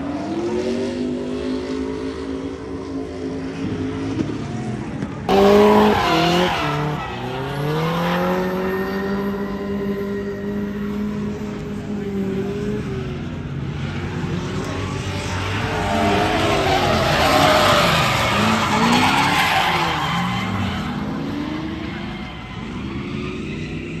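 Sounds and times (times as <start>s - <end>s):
car engine revving: 3.5s - 24.0s
tyres squealing: 15.5s - 22.7s.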